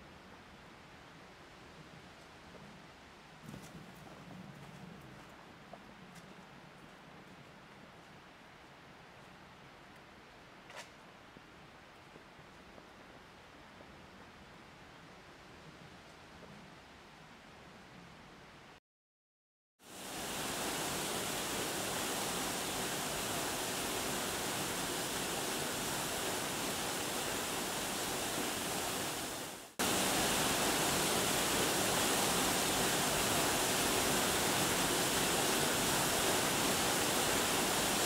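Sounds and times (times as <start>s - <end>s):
waterfall rushing: 19.9s - 38.0s.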